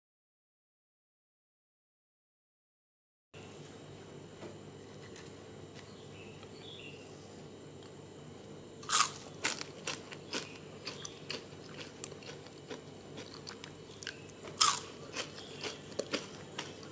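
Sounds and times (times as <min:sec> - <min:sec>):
chewing crunches: 0:08.8 - 0:16.9
crunch of biting fries: 0:08.8 - 0:16.9.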